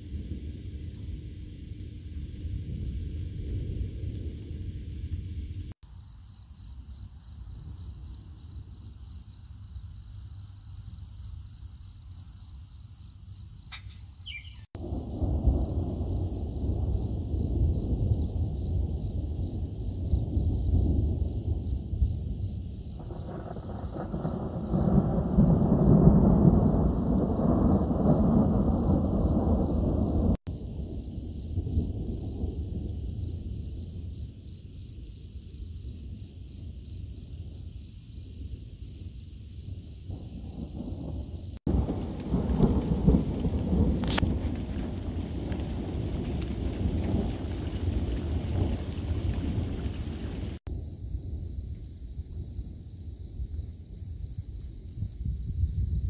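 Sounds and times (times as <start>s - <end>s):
thunder rumbling: 0.0s - 5.8s, 14.3s - 34.5s, 39.6s - 56.0s
crickets chirping: 0.0s - 56.0s.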